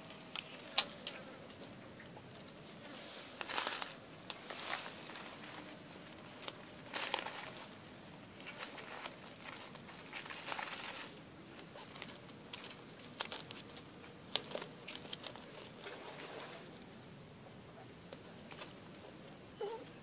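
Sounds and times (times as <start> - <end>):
rustling against a sack: 2.5 - 17.2
puppies scrabbling on dirt: 3.4 - 16.8.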